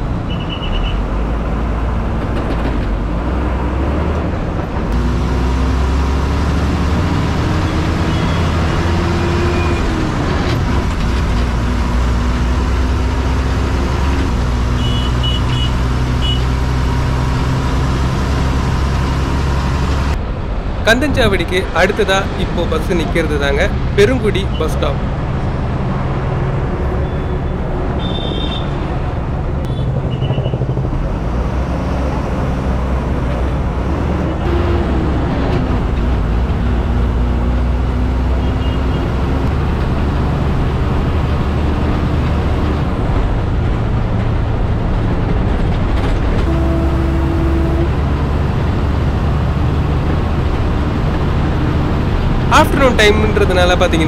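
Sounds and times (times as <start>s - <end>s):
bus engine running under load: 0.0s - 54.0s
road noise: 0.0s - 54.0s.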